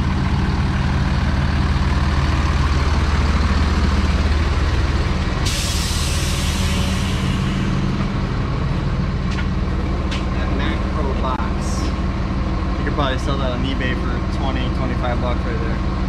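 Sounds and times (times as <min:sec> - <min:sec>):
diesel truck engine idling: 0:00.0 - 0:16.0
air brake hiss: 0:05.4 - 0:07.9.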